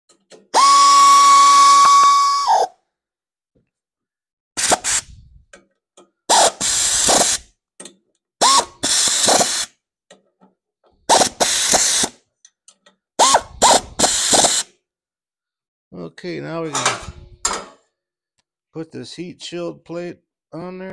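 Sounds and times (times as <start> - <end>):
ratchet wrench clicking: 8.4 - 9.7.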